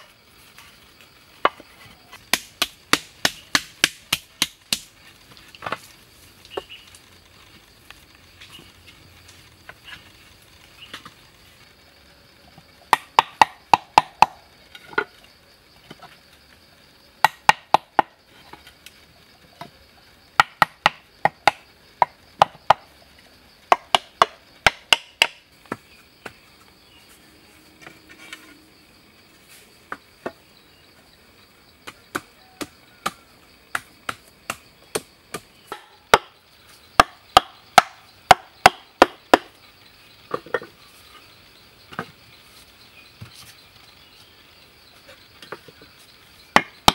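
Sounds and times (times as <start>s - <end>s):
bamboo tubes knocking: 1.3s - 5.9s, 12.8s - 15.2s, 17.2s - 18.6s, 20.4s - 22.9s, 23.6s - 26.6s, 31.8s - 36.4s, 37.0s - 39.6s, 40.3s - 40.8s, 41.9s - 42.2s, 45.0s - 45.9s, 46.5s - 46.9s.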